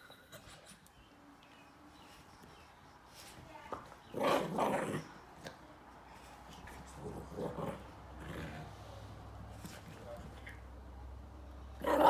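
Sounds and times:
small dog growling: 0:06.9 - 0:08.9.

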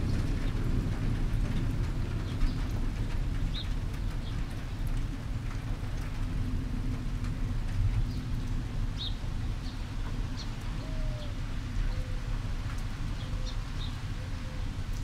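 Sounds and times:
thunder rumble: 0:00.0 - 0:10.8.

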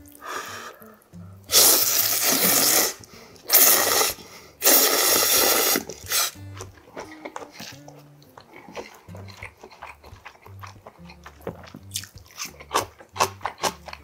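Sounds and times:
man slurping noodles: 0:01.5 - 0:06.4.

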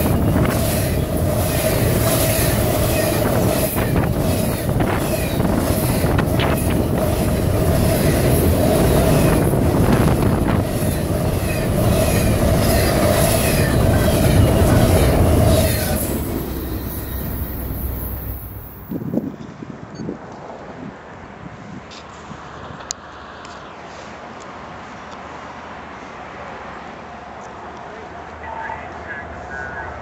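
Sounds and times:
freight train wheels rumbling on rail: 0:00.0 - 0:19.6
ringing rail tone: 0:10.6 - 0:19.0.

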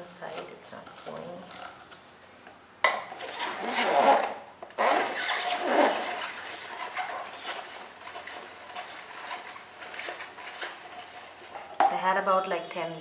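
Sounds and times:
hand-crank juicer grinding: 0:02.9 - 0:11.8.

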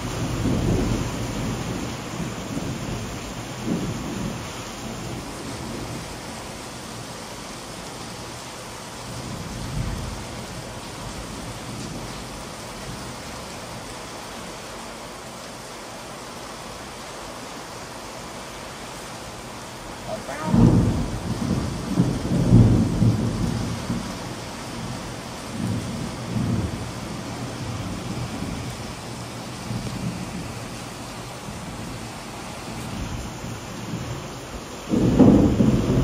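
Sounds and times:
thunder rumbling: 0:00.0 - 0:07.1, 0:19.9 - 0:36.0
steady rain: 0:00.0 - 0:36.0.

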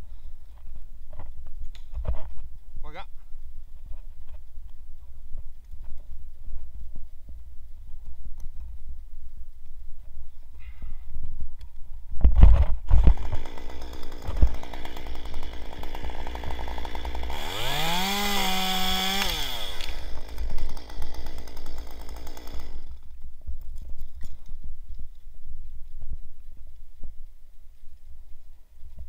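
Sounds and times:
chainsaw revving and idling: 0:13.0 - 0:23.1.

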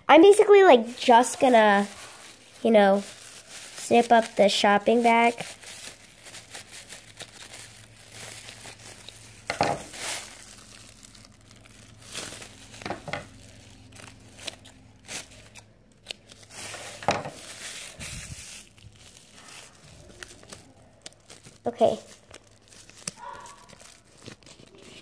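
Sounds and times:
plastic bag crinkling: 0:00.7 - 0:25.0.

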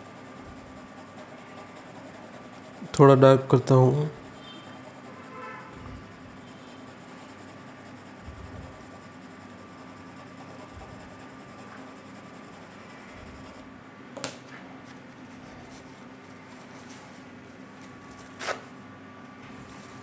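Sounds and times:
pencil shading on paper: 0:00.0 - 0:03.2, 0:04.1 - 0:13.6.

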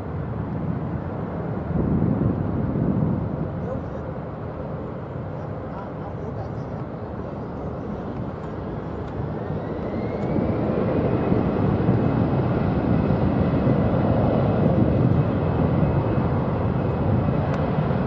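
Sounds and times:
jet roar overhead: 0:00.0 - 0:18.0
faint rising whine: 0:06.6 - 0:12.8.

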